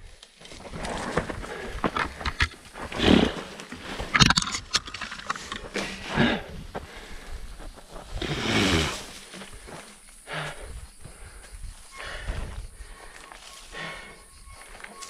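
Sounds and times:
rider groaning: 0.8 - 7.4, 8.1 - 11.3.

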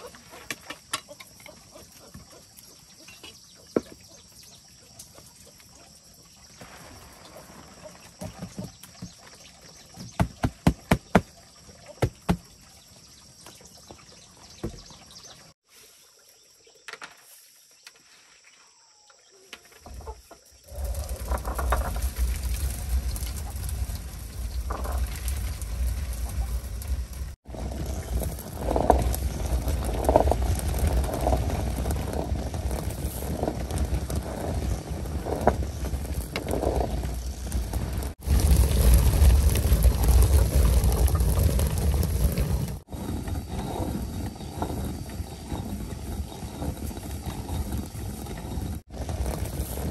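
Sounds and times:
stone hand mill grinding: 41.4 - 49.9.

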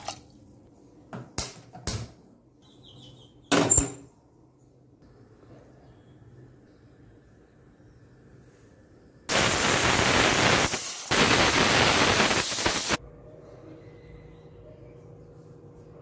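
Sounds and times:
pressure cooker whistle hissing: 9.3 - 13.0.

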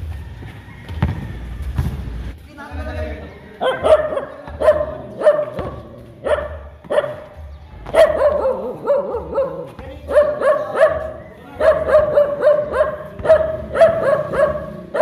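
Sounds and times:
dog barking: 3.6 - 15.0.

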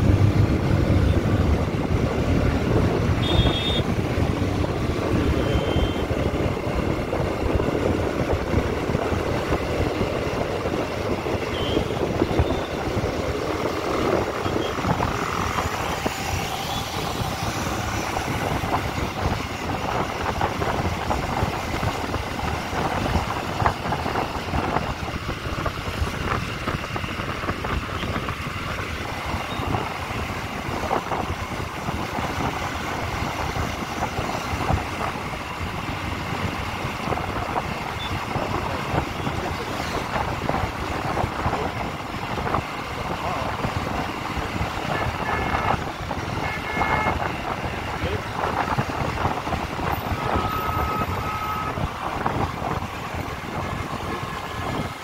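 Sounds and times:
motorcycle engine and road noise: 0.0 - 55.0
wind buffeting microphone: 6.0 - 55.0.

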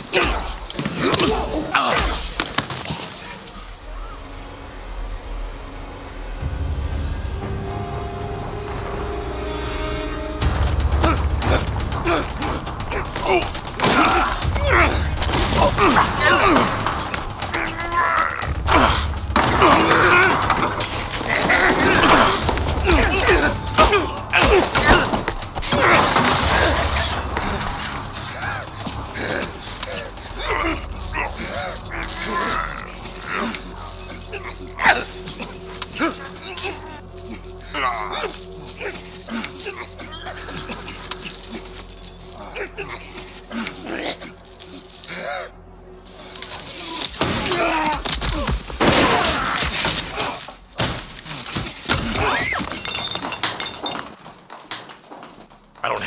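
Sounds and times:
glass bottles smashing: 26.0 - 42.6, 43.2 - 45.2, 52.6 - 54.3
chains clanking: 26.2 - 45.4, 52.6 - 54.3.

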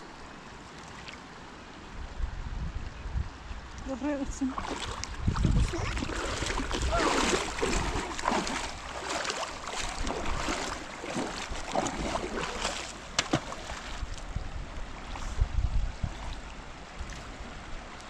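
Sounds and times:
river water rushing: 3.9 - 15.2.

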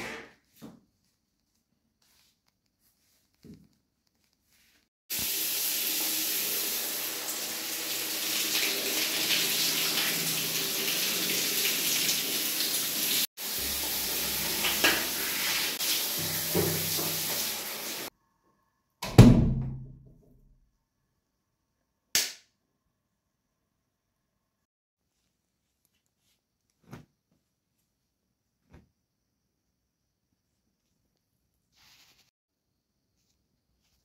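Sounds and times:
water running: 5.1 - 18.1.

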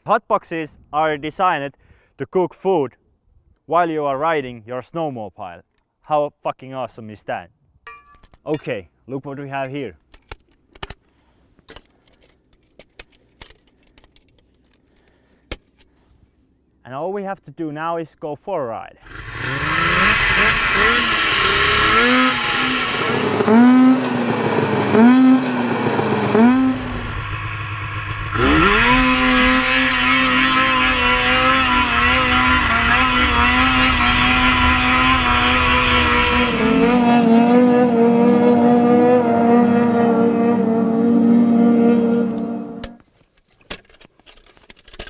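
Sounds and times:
snowmobile engine revving: 19.0 - 43.0.

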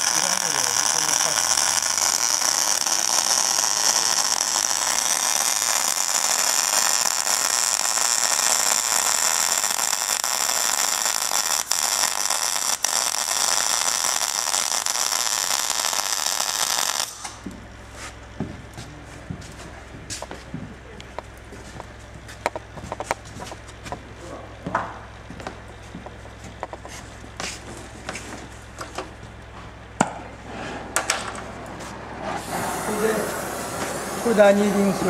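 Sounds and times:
gas torch flame hissing: 0.0 - 17.5, 32.4 - 35.0.

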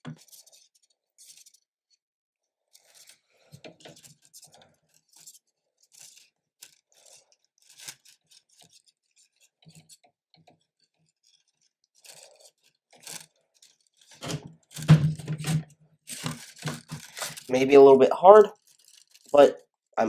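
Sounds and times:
plastic filament scraping and clicking: 2.7 - 17.5, 18.5 - 19.7
handling noise: 14.0 - 17.5.

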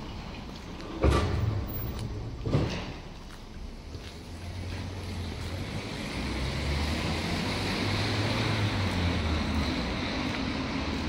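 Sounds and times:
motor vehicle passing: 4.4 - 11.0.

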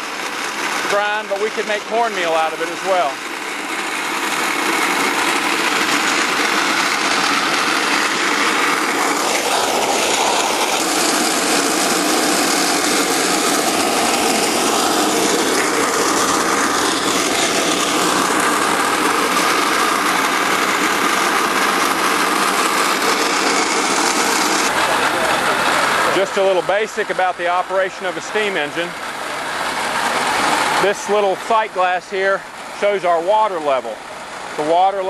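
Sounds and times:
mill grinding corn: 0.0 - 35.0.

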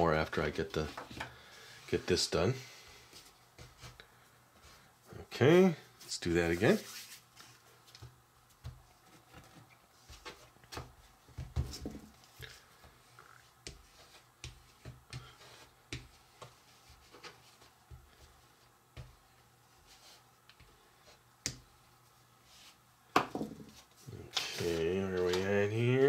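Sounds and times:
hands and utensils tapping dough: 7.9 - 8.8, 13.6 - 16.6, 21.4 - 21.7.

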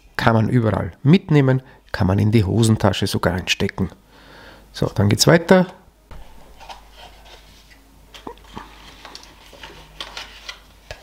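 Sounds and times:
packaging rustling: 6.1 - 11.0.

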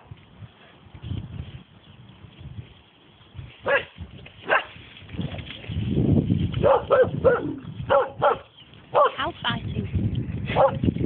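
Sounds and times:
dog barking: 3.6 - 4.7, 6.6 - 9.2, 10.5 - 10.8
low microphone rumble: 4.8 - 11.0.

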